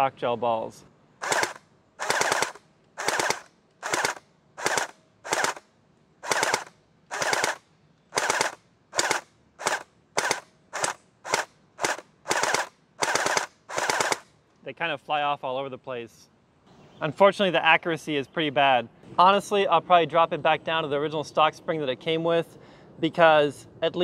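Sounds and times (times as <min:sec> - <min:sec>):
gel blaster firing bursts: 0:01.2 - 0:05.6, 0:06.2 - 0:14.3.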